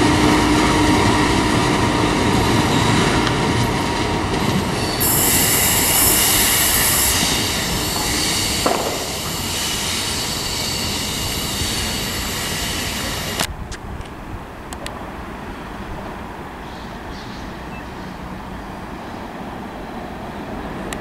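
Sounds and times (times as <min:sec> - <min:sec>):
train running over tracks: 0:00.0 - 0:21.0
train wheels squealing: 0:04.8 - 0:13.4
loud hiss: 0:05.0 - 0:13.4.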